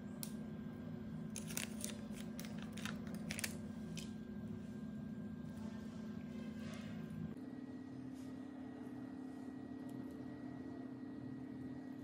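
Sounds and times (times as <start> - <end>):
steady low hum: 0.0 - 12.0
brownie crust crackling: 1.3 - 4.1.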